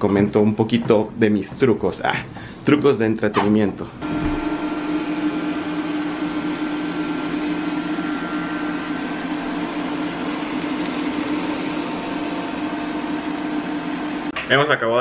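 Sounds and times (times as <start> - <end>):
cooling fan whirring: 3.8 - 14.4
electric hum: 4.0 - 14.4.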